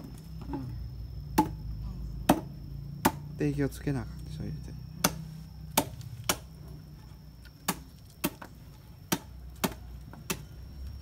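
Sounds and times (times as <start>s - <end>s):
machete chopping on wooden board: 1.3s - 1.6s, 2.2s - 3.3s, 5.0s - 6.5s, 7.6s - 10.5s.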